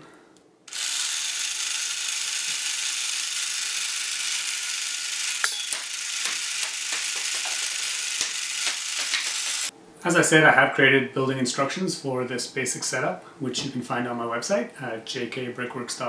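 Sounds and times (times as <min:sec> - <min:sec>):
toy motor whirring: 0:00.7 - 0:09.7.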